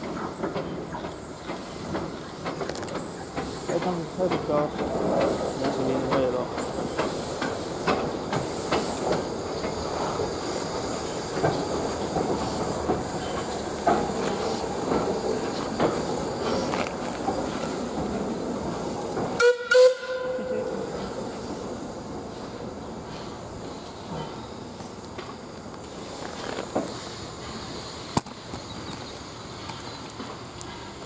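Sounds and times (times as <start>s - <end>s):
steam train running: 0.0s - 31.0s
train wheels clicking: 0.0s - 31.0s
steam whistle blasts: 19.4s - 20.6s.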